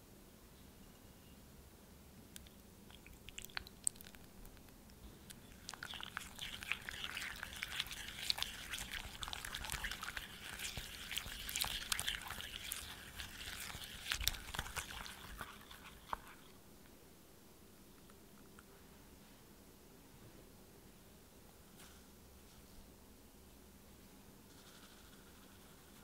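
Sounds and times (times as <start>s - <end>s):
whisk squelching in bowl: 2.9s - 4.6s, 5.3s - 16.6s.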